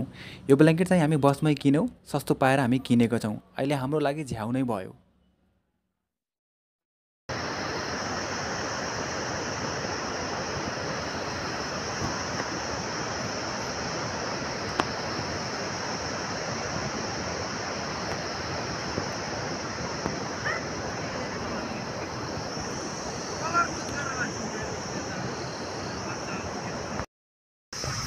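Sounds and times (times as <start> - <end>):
steady rushing noise: 7.3 - 27.0
high hiss: 7.3 - 27.1, 27.8 - 28.0.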